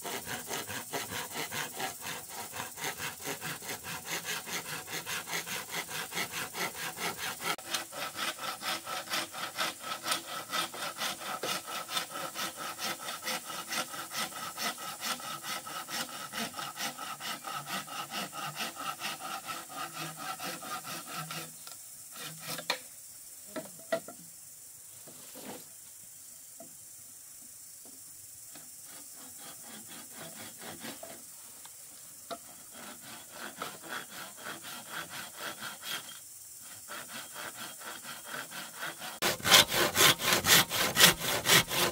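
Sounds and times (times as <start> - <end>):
hand saw cutting bamboo: 0.0 - 22.8, 28.8 - 31.3, 32.3 - 41.9.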